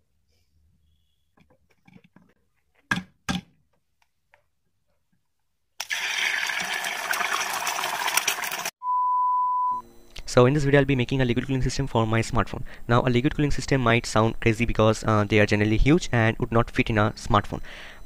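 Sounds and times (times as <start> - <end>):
egg sizzling in pan: 5.8 - 8.8
steady beep: 8.8 - 10.0.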